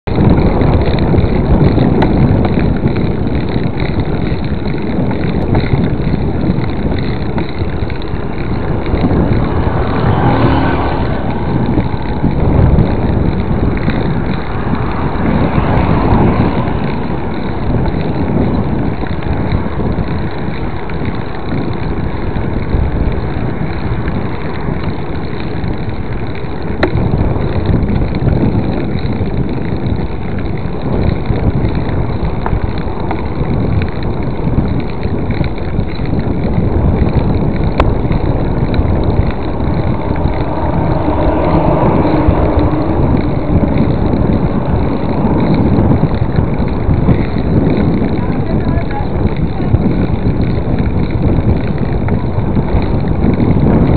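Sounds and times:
wind rushing over microphone: 0.0s - 53.9s.

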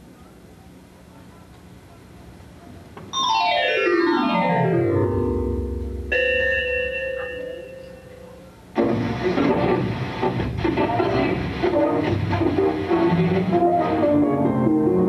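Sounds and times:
synthesizer falling note run: 3.2s - 6.6s.

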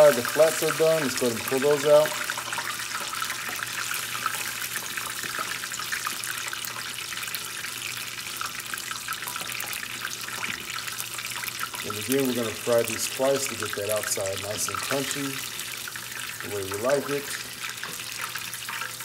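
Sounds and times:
oil bubbling and crackling: 0.0s - 19.0s.

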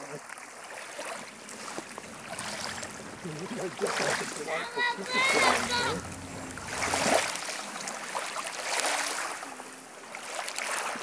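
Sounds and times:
waves lapping on pebbles: 0.0s - 11.0s
faint voices: 1.2s - 7.4s.

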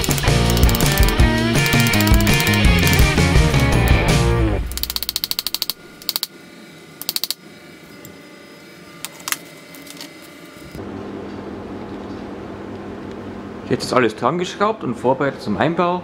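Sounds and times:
hand ratchet clicking: 0.0s - 4.0s, 4.7s - 6.3s, 7.0s - 7.4s
music: 0.0s - 4.8s.

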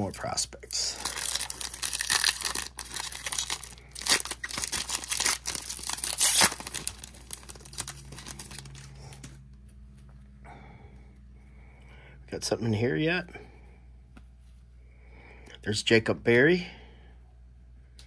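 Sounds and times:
wrapper tearing and crinkling: 0.8s - 9.3s.

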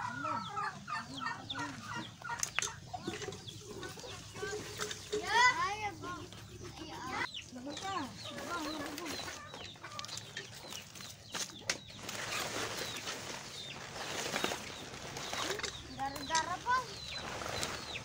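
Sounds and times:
chickens clucking: 0.0s - 18.0s
leaves rustling as gathered: 7.2s - 18.0s.

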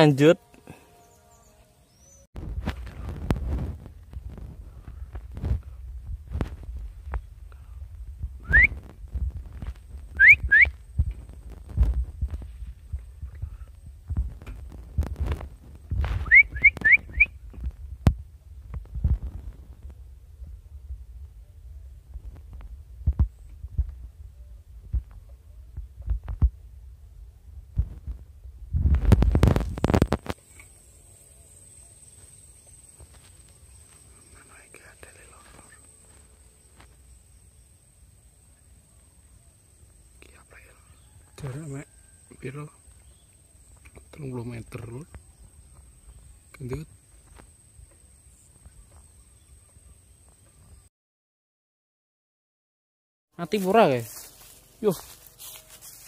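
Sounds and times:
steady low rumble: 2.4s - 16.3s, 17.1s - 30.1s
loud rising whistles: 8.4s - 8.8s, 10.2s - 10.8s, 16.2s - 17.4s
loud crackling and rustling: 14.2s - 16.3s, 28.8s - 30.4s.

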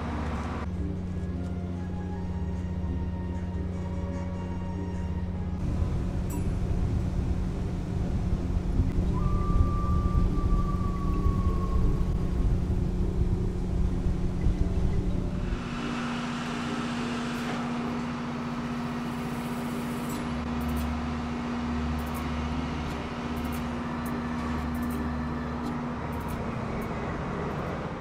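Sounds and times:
ferry engines humming: 0.0s - 28.0s
low rumble: 5.6s - 16.0s.

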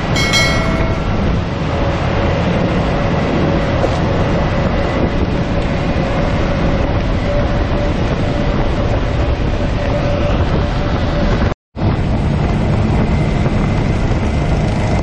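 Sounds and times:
outboard motors droning: 0.0s - 15.0s.

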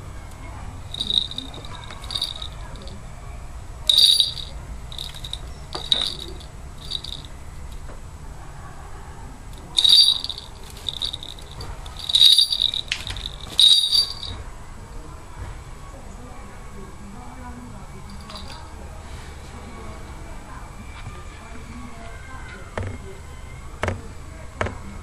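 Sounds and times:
small metal bells jingling: 0.9s - 3.0s, 3.9s - 7.3s, 9.7s - 14.4s, 18.1s - 18.7s.

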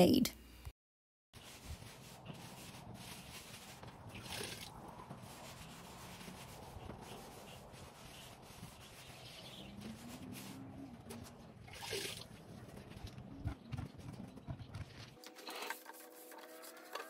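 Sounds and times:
faint rubbing strokes: 1.4s - 11.5s.

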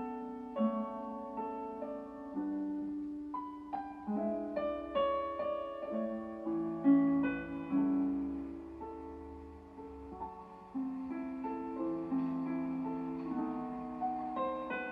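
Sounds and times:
slow piano melody and chords: 0.0s - 14.9s.

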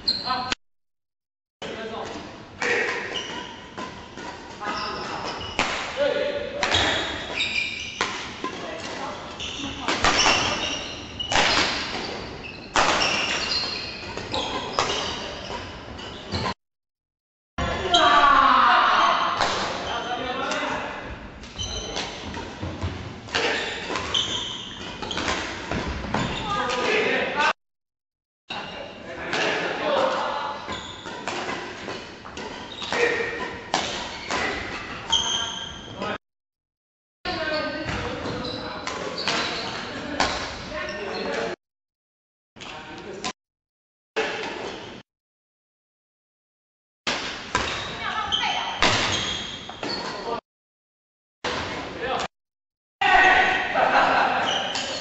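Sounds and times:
shoes squeaking on court floor: 0.0s - 0.5s, 2.7s - 5.7s, 6.6s - 16.6s, 19.0s - 20.2s, 21.4s - 26.9s, 28.5s - 29.0s, 30.5s - 36.2s, 37.3s - 41.6s, 47.6s - 50.4s, 54.4s - 55.0s
rackets hitting shuttlecock: 6.6s - 7.4s, 9.8s - 10.6s, 11.3s - 15.6s, 31.0s - 34.9s.

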